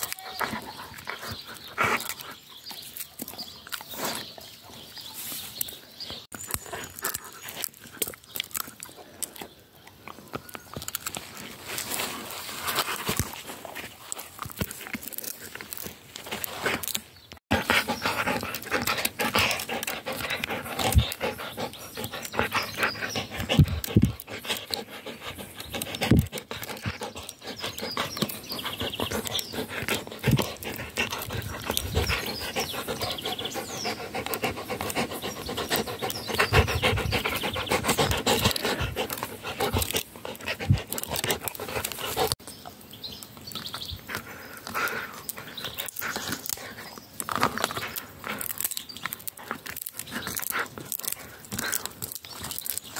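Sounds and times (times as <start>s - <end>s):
dog panting hard: 17.5s - 42.4s.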